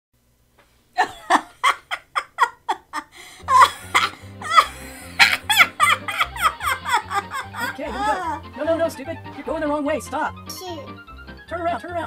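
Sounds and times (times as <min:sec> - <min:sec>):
person laughing: 0:01.0 - 0:08.4.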